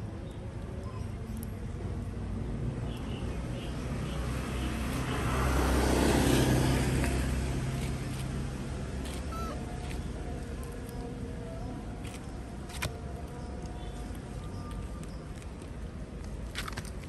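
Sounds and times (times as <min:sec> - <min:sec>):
motor vehicle passing by: 0:01.6 - 0:11.9.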